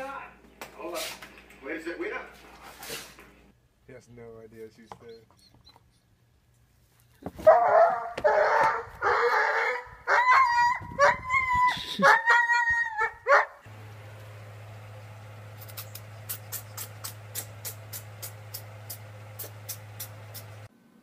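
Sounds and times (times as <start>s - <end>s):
dog barking: 7.4s - 11.2s, 12.0s - 13.6s
dog yelping: 7.4s - 13.6s.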